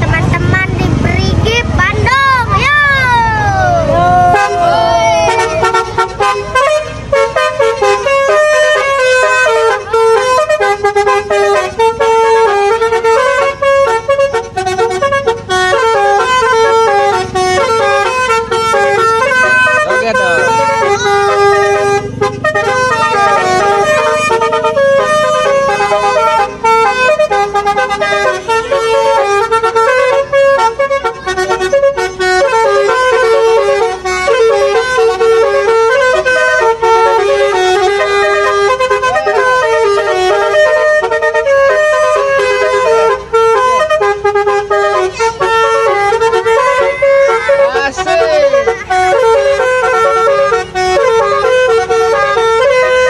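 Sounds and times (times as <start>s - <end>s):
bus musical horn melody: 1.4s - 53.0s.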